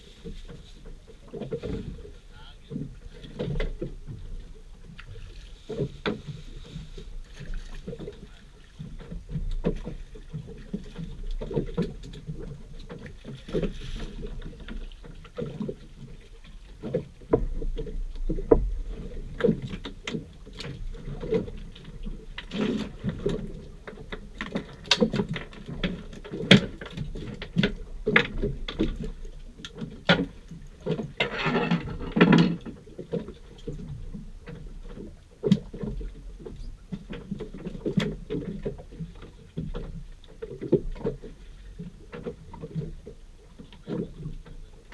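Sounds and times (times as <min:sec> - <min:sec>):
waves slapping against boat hull: 0:00.0 - 0:44.9.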